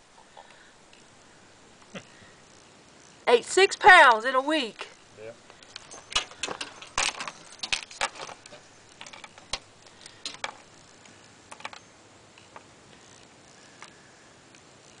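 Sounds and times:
raccoon in wire cage clicking: 5.7 - 11.8.

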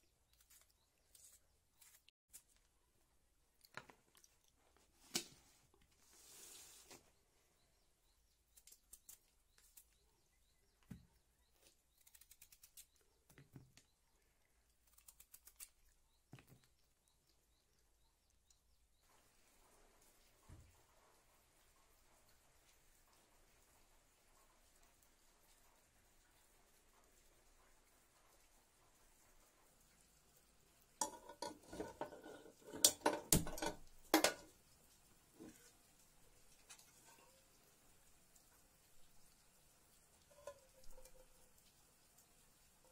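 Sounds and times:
metal pot clanking on stove grate: 31.0 - 34.5.

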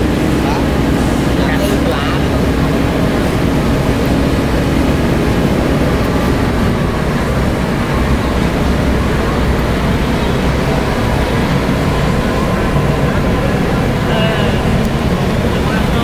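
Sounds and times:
heavy diesel engines rumbling: 0.0 - 16.0.

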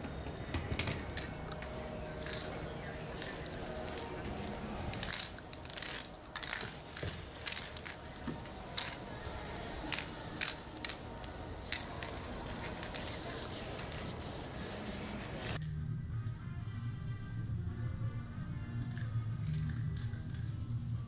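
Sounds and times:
spray paint can hissing: 1.2 - 15.6.

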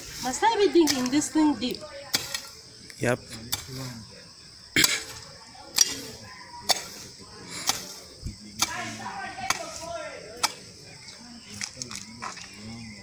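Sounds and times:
garden hoe striking soil: 0.8 - 1.3, 2.1 - 2.6, 3.5 - 3.8, 4.8 - 6.1, 6.7 - 7.0, 7.6 - 8.0, 8.6 - 10.6.

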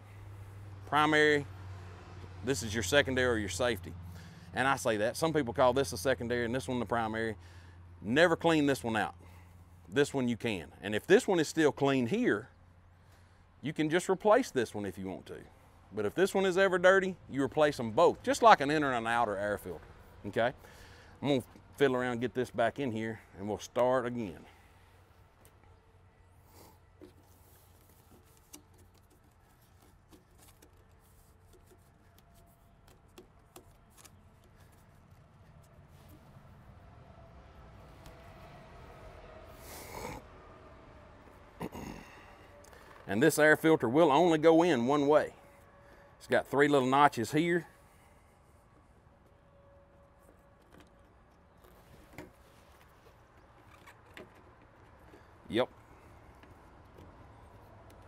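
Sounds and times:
air filter clicking and rubbing: 26.6 - 36.6, 50.1 - 58.0.

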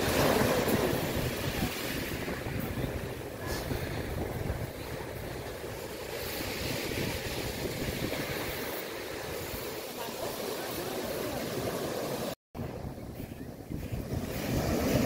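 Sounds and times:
wind rumbling on microphone: 0.0 - 9.9, 12.6 - 15.0
sea water splashing: 0.0 - 12.4.

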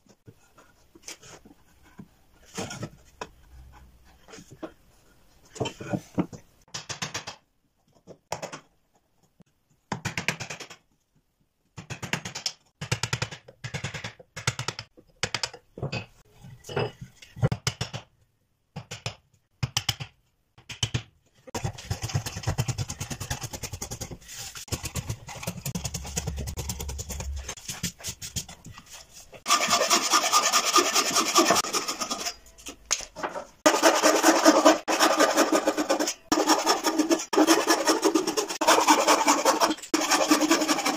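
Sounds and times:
frame saw cutting wood: 29.4 - 32.4, 33.6 - 40.9
chisel scraping across wood: 33.7 - 40.9.

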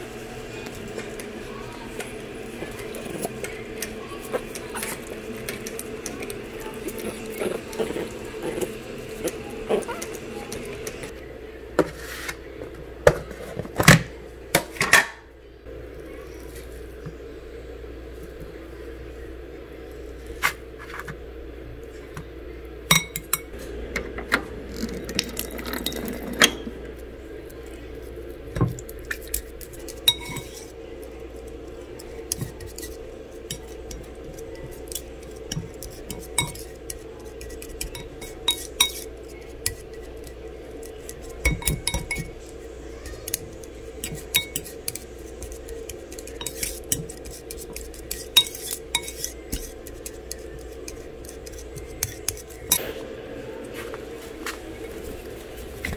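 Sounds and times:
plastic fork scraping a bowl: 31.9 - 41.9, 43.2 - 52.8
low hum: 52.6 - 55.9.

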